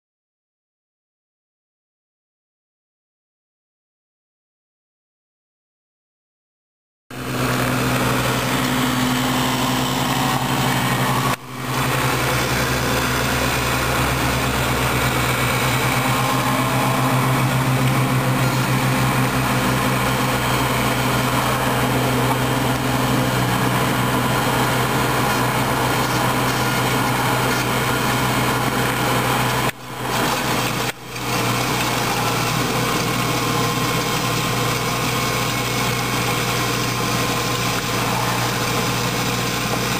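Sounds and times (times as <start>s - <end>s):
tractor engine humming: 7.1s - 39.9s.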